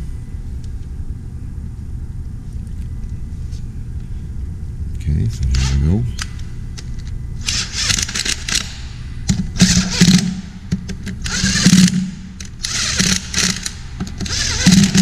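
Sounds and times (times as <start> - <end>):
cordless power tool whirring: 11.2 - 15.0.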